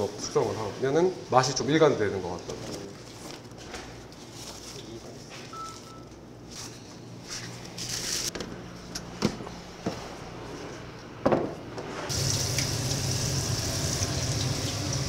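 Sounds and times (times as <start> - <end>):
kitchen knocks and clatters: 11.2 - 11.9.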